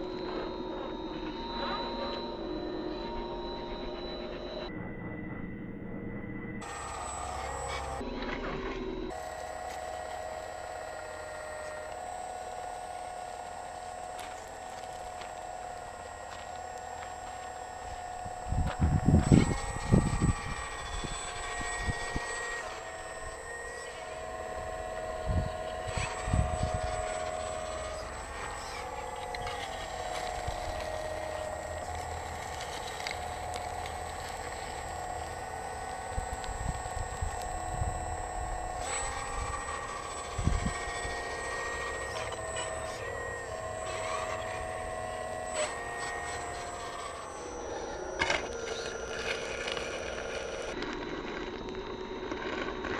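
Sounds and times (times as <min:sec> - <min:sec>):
hydraulic pump whining: 0:00.0 - 0:04.8, 0:06.6 - 0:52.9
wind buffeting microphone: 0:18.2 - 0:22.3, 0:40.4 - 0:41.2.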